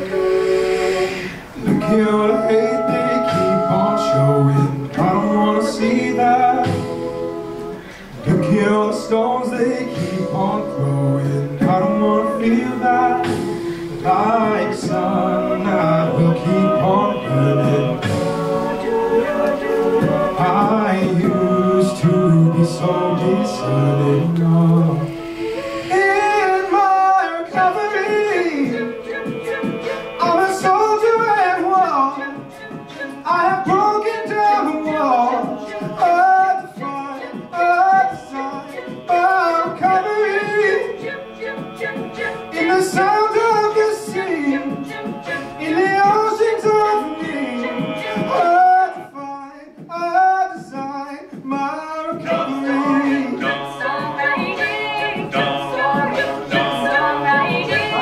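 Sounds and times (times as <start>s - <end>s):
a cappella group singing in harmony: 0.0s - 58.0s.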